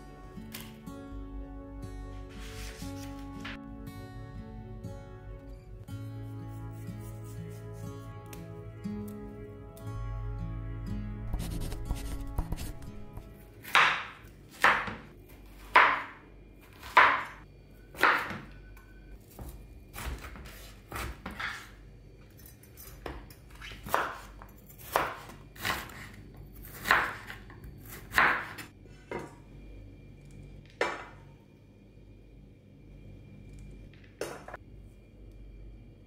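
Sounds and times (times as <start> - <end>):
soft guitar music: 0.0 - 13.6
knife chopping on cutting board: 11.3 - 17.4, 23.8 - 26.1, 26.7 - 29.3.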